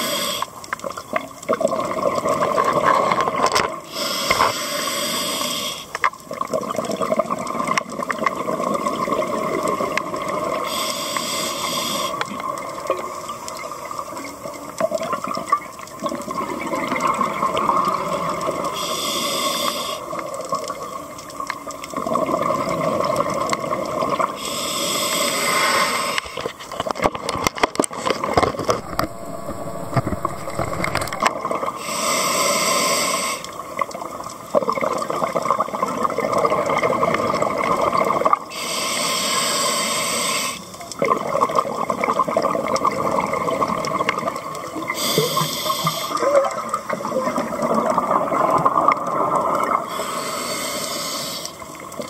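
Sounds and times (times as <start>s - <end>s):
regulator inhalation hiss: 0.0s - 0.5s, 3.9s - 6.0s, 10.6s - 12.2s, 18.7s - 20.2s, 24.4s - 26.4s, 31.8s - 33.6s, 38.5s - 40.6s, 44.9s - 46.2s, 49.9s - 51.6s
exhaled bubbles gurgling: 0.0s - 4.0s, 6.2s - 10.7s, 12.0s - 19.0s, 19.6s - 38.5s, 40.6s - 52.0s.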